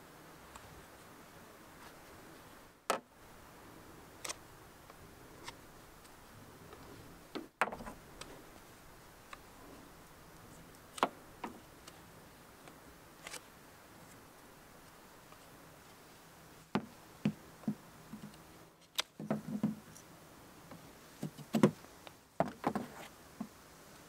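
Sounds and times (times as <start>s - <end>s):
faint steady hiss: 0.0s - 24.0s.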